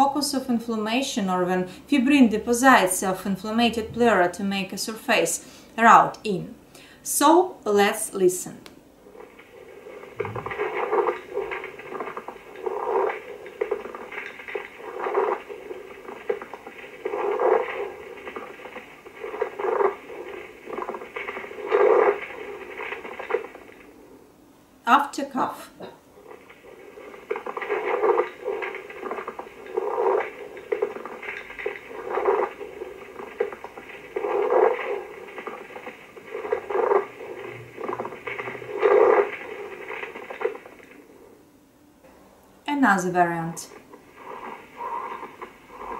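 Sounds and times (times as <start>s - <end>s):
scratchy rubbing through stethoscope: 9.0s - 24.0s, 26.2s - 41.3s, 43.8s - 45.9s.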